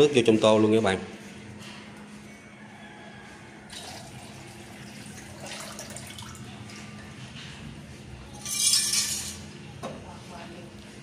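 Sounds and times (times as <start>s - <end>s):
water pouring into a bowl: 3.7s - 6.8s.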